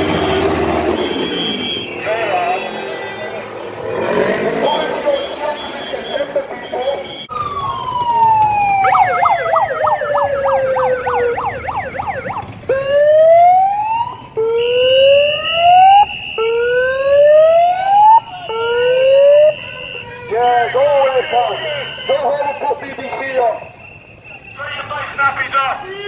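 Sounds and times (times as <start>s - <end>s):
siren yelp: 4.6s - 25.9s
siren wail: 6.8s - 25.2s
steady high siren tone: 7.1s - 25.4s
siren whoops: 7.2s - 24.9s.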